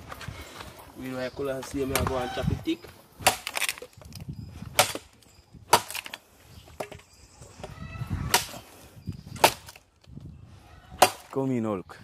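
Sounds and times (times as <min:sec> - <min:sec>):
blade chopping wood: 0:03.2 - 0:03.9, 0:04.7 - 0:06.2, 0:08.3 - 0:08.6, 0:09.3 - 0:09.8, 0:11.0 - 0:11.4.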